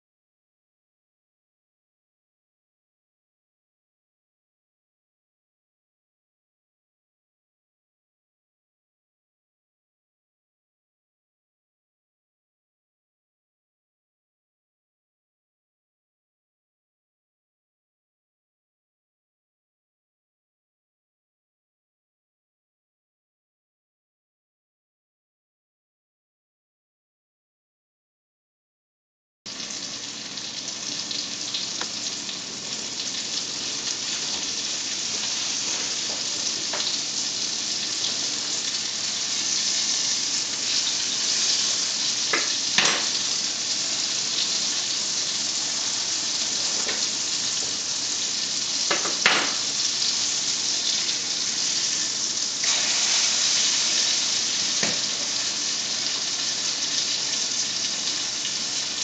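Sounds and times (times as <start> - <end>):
fish frying in butter: 29.5 - 59.0
sharp pops of frying: 35.9 - 37.1, 39.4 - 43.4, 48.8 - 51.2, 52.6 - 55.5.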